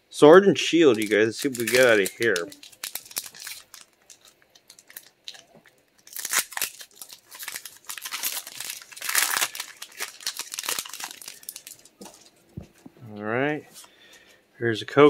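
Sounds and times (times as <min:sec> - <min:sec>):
wrapper crinkling and tearing: 0:00.9 - 0:12.4.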